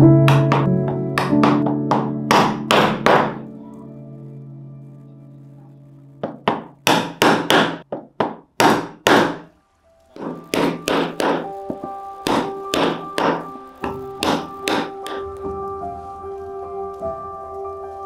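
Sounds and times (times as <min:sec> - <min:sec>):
mallet knocking chisel: 0:12.3 - 0:15.2.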